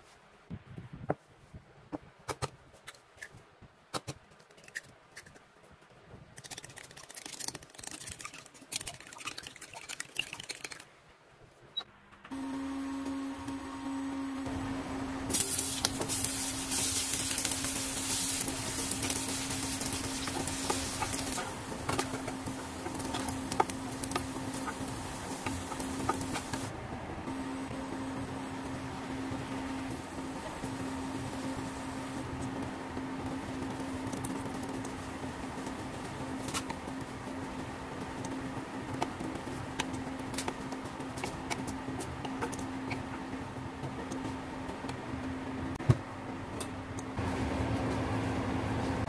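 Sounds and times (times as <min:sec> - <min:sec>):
steady hum and hiss: 0:00.0 - 0:49.0
egg cracked and beaten in bowl: 0:06.4 - 0:10.9
sausages sizzling in frying pan: 0:15.2 - 0:26.7.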